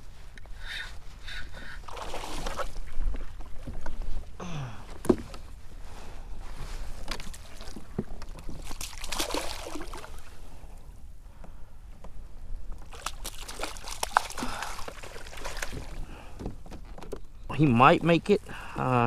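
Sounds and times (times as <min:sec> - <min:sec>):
water splashing against kayak: 0:01.8 - 0:04.2, 0:06.8 - 0:10.5, 0:12.8 - 0:17.2.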